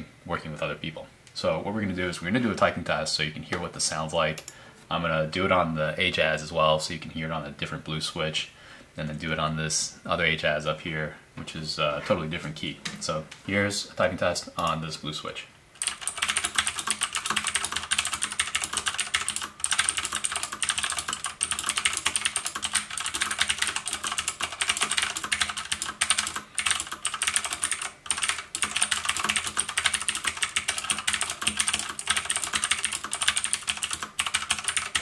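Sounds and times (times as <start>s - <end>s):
mechanical keyboard typing: 15.8s - 35.0s.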